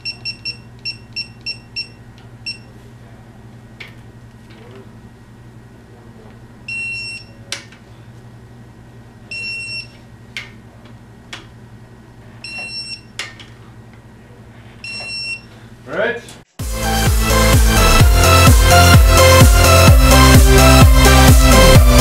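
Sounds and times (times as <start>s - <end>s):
steady low hum: 0.0s - 16.5s.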